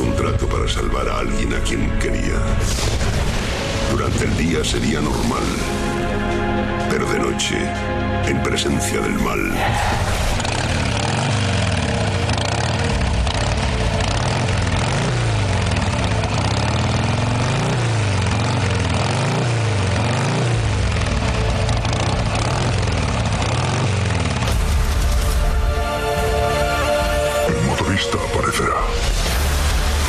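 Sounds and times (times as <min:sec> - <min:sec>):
droning rushing noise with pitch sweeps: 0:09.5 - 0:16.8.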